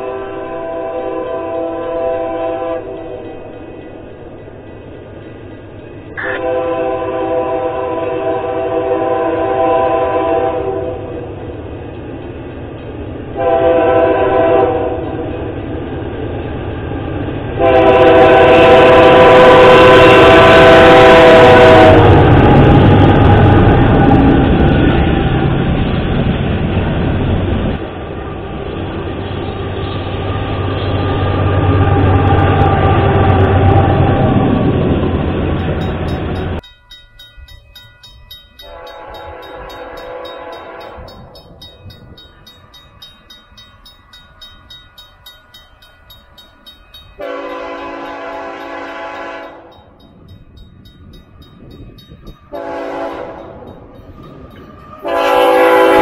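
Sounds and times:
locomotive air horn: 0:00.0 - 0:03.2, 0:06.2 - 0:11.2, 0:13.4 - 0:15.2, 0:17.6 - 0:22.3, 0:38.6 - 0:41.1, 0:47.2 - 0:49.7, 0:52.5 - 0:53.6, 0:54.9 - 0:56.0
train wheels rolling: 0:00.0 - 0:56.0.

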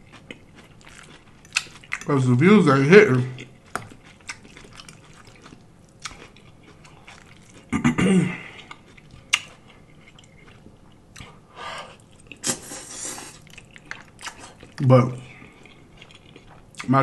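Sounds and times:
chewing: 0:00.0 - 0:17.0
throaty vocal sound: 0:07.7 - 0:08.6
slurping noodle: 0:12.4 - 0:13.4.

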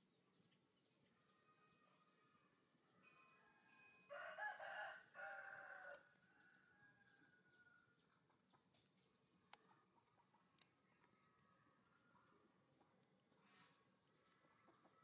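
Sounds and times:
rooster crowing: 0:03.6 - 0:07.9.

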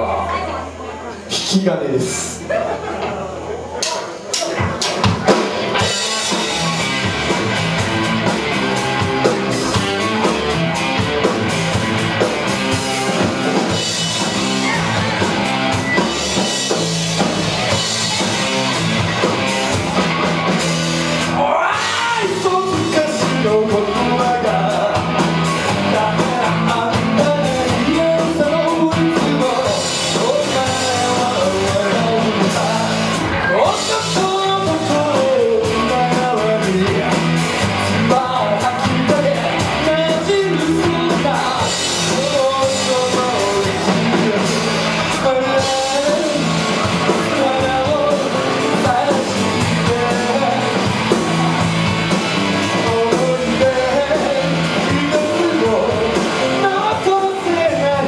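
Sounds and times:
rock band playing: 0:00.0 - 0:58.0
male lead vocal: 0:21.3 - 0:58.0.

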